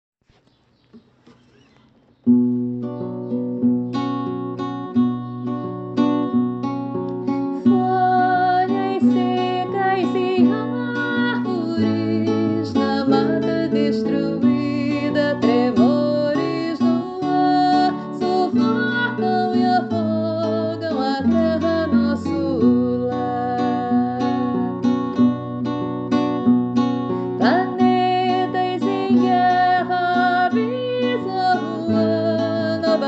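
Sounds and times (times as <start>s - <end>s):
acoustic guitar strumming: 1.4s - 33.0s
woman singing: 7.5s - 25.3s, 27.2s - 33.0s.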